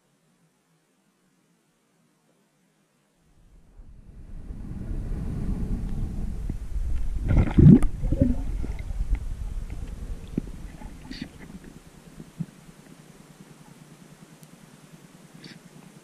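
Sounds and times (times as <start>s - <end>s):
water gurgling surge: 3.4s - 12.8s
underwater rumbling rush: 3.4s - 13.2s.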